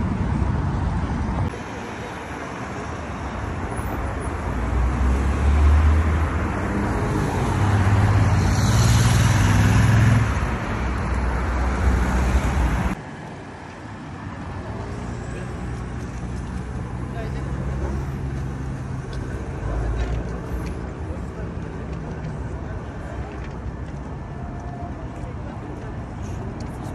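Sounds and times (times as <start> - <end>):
cars and motorcycles passing: 0.0 - 26.9
distant traffic hum: 0.0 - 26.9.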